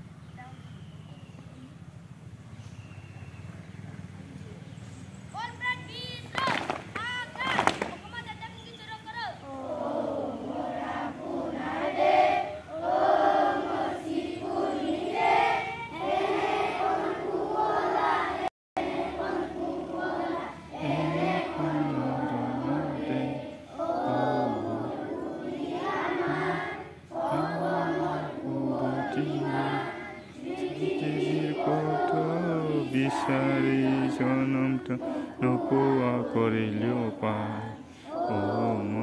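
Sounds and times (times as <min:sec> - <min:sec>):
children's choir singing: 0:09.4 - 0:39.0.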